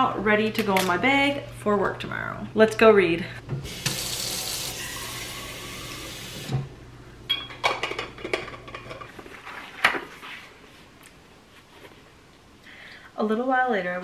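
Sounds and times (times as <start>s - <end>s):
faucet running into bottle: 3.6s - 6.6s.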